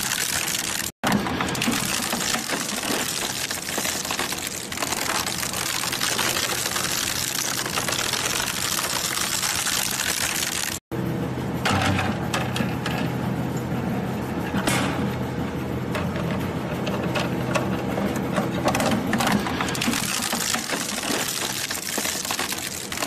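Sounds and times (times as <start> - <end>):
shredder crunching plastic: 0.0 - 10.8, 18.5 - 23.0
machine low hum: 10.9 - 23.0.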